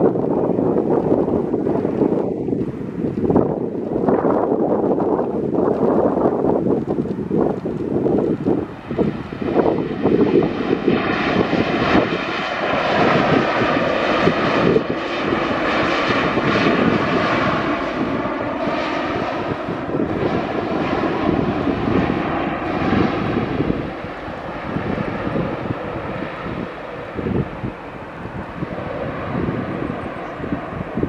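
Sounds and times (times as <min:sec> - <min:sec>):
jet engines whining: 0:07.2 - 0:31.0.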